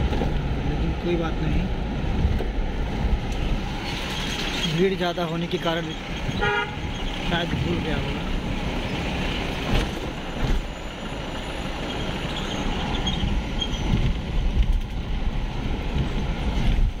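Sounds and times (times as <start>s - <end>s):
engine and road rumble: 0.0s - 17.0s
wind on microphone: 12.8s - 17.0s.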